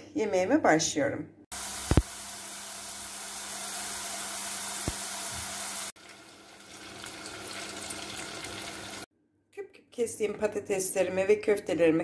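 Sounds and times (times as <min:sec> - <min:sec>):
meatballs sizzling in oil: 0:01.5 - 0:09.1
potatoes deep-frying in oil: 0:01.5 - 0:09.1.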